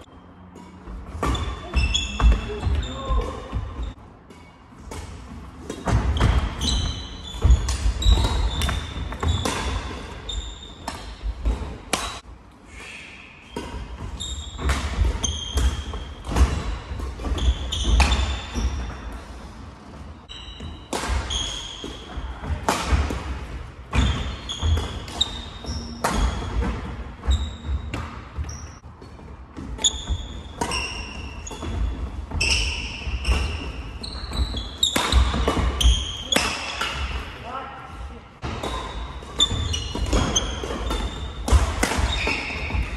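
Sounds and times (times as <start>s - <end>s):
shoe soles squeaking: 0.0s - 4.7s, 5.6s - 11.2s, 13.4s - 19.2s, 20.1s - 22.2s, 24.0s - 29.1s, 29.7s - 36.8s, 38.6s - 42.9s
racket striking shuttlecock: 10.8s - 12.2s, 34.9s - 37.1s, 38.6s - 42.9s.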